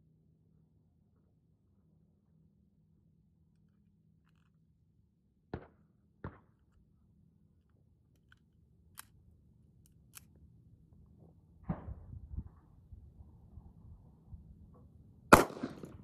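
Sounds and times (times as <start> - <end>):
gunshot: 11.6 - 12.1, 15.3 - 16.0.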